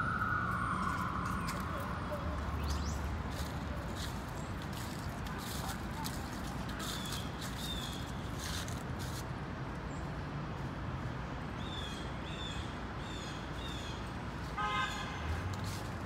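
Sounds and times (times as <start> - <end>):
city traffic rumble: 0.0 - 16.0
car horn toot: 14.6 - 15.3.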